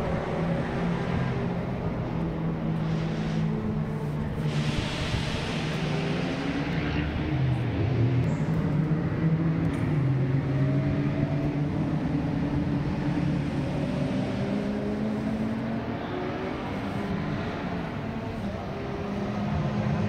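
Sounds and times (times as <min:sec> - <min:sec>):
racing car engines: 0:00.0 - 0:20.0.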